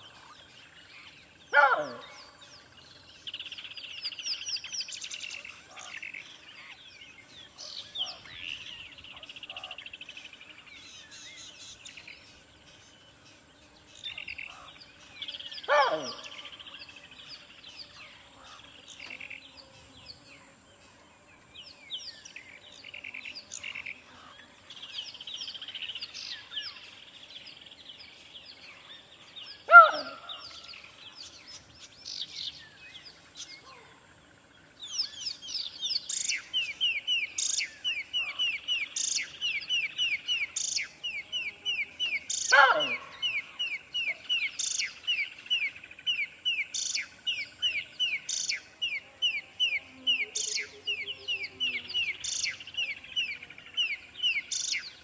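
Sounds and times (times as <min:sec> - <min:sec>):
small birds chirping: 0:00.0 - 0:55.0
descending bird call: 0:15.6 - 0:16.6, 0:29.6 - 0:30.6, 0:41.7 - 0:44.5.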